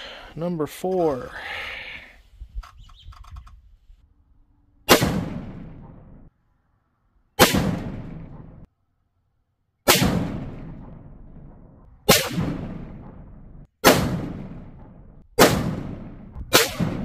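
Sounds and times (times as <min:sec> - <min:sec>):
rifle shots with echo: 0:04.9 - 0:06.3, 0:07.4 - 0:08.7, 0:09.9 - 0:17.0.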